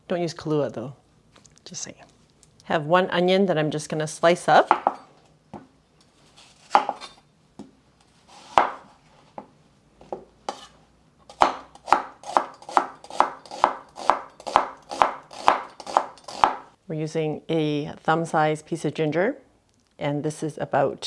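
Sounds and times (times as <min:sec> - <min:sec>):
knife slicing on wooden board: 0:10.5 - 0:10.8.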